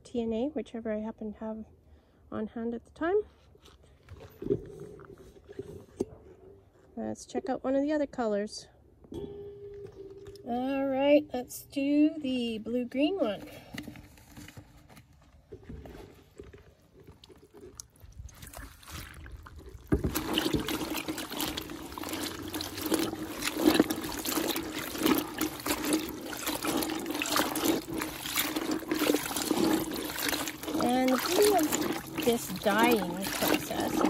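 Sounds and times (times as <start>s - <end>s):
liquid sloshing and dripping: 9.1s - 11.0s, 13.3s - 34.0s
wet fabric pulled from bucket: 13.0s - 34.0s.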